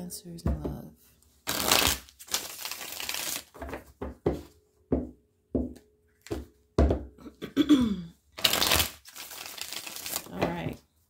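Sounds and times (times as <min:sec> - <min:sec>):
cards shuffling: 0:01.5 - 0:03.9, 0:08.4 - 0:10.6.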